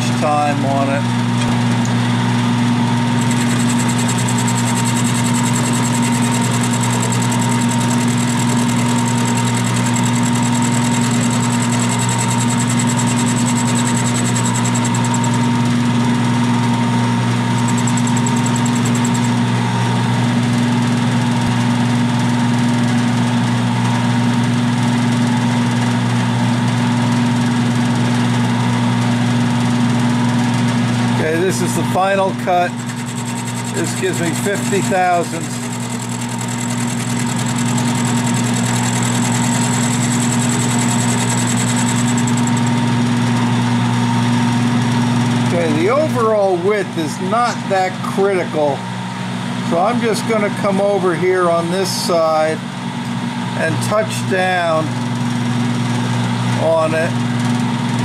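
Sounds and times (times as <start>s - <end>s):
milling machine hum: 0.0s - 24.2s, 29.2s - 50.8s
thin high whine: 3.1s - 15.6s, 17.5s - 19.5s.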